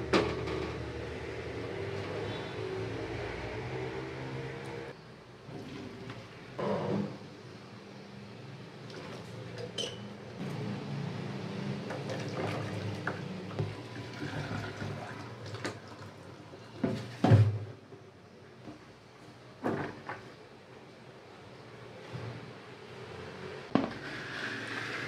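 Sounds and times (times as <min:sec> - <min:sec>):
water pouring into steel sink: 0:11.9 - 0:16.2, 0:23.9 - 0:25.0.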